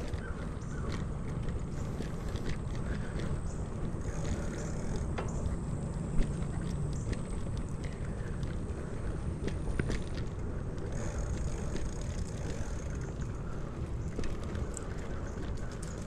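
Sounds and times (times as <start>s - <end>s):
bicycle road noise: 0.0s - 16.0s
wind rumble: 0.0s - 16.0s.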